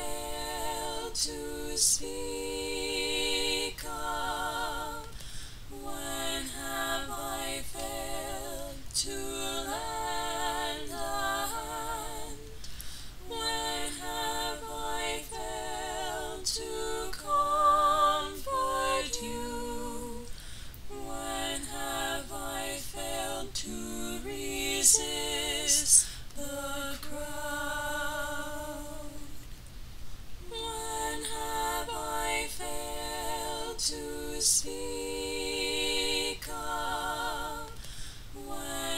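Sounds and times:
woman singing unaccompanied: 0.0s - 5.1s, 20.9s - 29.4s, 30.4s - 35.4s.

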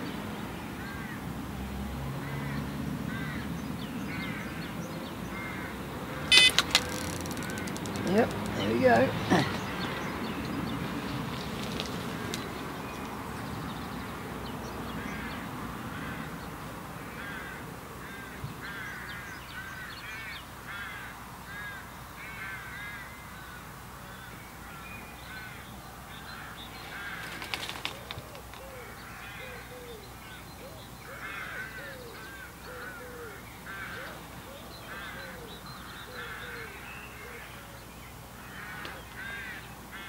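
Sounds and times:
birds calling: 0.0s - 1.2s, 2.2s - 40.0s
low falling bird calls: 5.3s - 13.9s, 24.1s - 40.0s
clicks: 6.3s - 8.7s.

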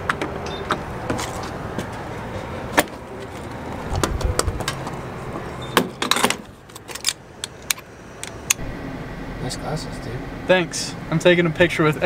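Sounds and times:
low steady hum: 6.7s - 12.0s.

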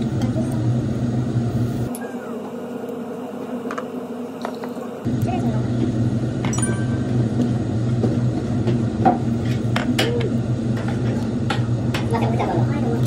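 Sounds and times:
steady low hum: 0.0s - 13.0s
sharp clicks and clinks: 6.5s - 7.0s.

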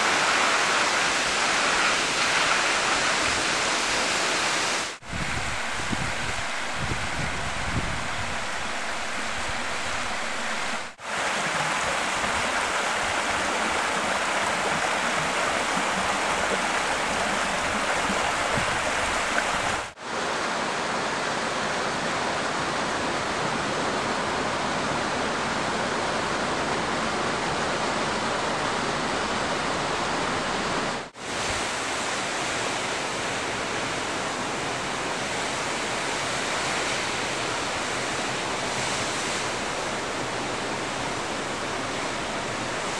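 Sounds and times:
waterfall rushing: 0.0s - 21.3s.

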